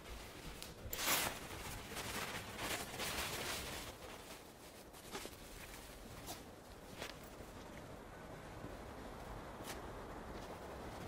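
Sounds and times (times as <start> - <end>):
fabric rustling: 0.0 - 7.4.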